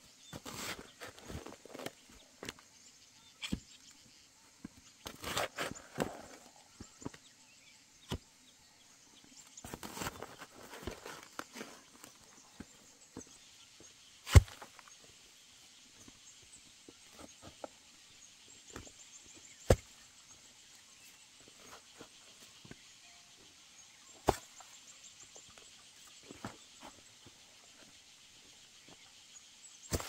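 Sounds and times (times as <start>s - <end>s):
hoe thudding into wet soil: 14.2s - 14.8s.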